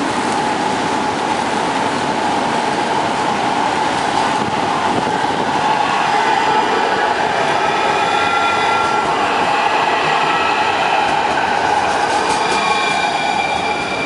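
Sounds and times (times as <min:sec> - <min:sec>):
tram rolling past: 0:00.0 - 0:14.0.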